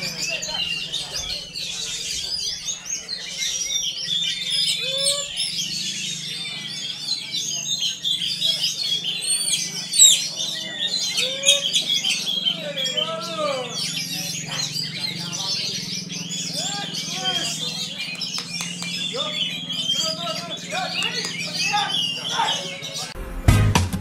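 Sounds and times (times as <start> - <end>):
low swooping bird calls: 0.0 - 23.2
songbirds chirping and trilling: 0.0 - 23.2.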